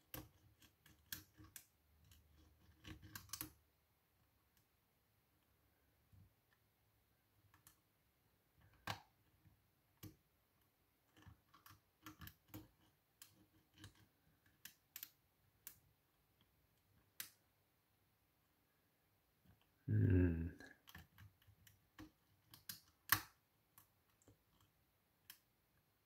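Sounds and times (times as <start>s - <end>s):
lock pick clicking in a lock: 0.1s - 3.6s, 11.1s - 15.8s, 20.8s - 25.4s.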